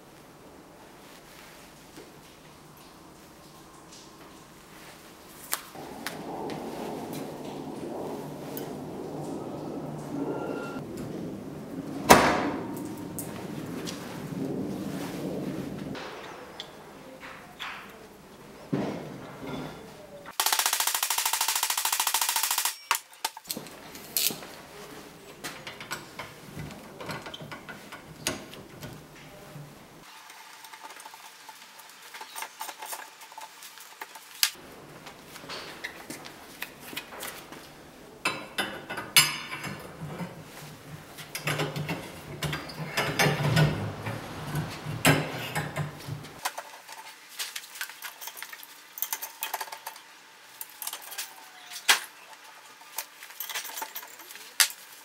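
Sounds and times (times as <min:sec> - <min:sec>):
metal parts clicking and clinking: 0:22.0 - 0:24.5, 0:41.2 - 0:55.0
metal parts rattling: 0:41.2 - 0:55.0.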